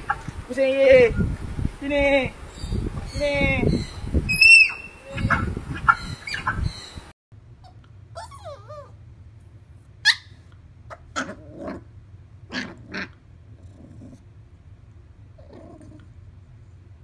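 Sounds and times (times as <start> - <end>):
dog yelping: 4.4 - 6.7, 7.6 - 9.0, 10.0 - 11.8
dog whining: 7.6 - 9.0.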